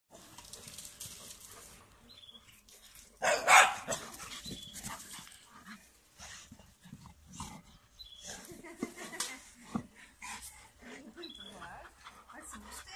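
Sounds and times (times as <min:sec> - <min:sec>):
dogs scuffling: 0:00.2 - 0:02.0
dog barking: 0:03.2 - 0:04.0.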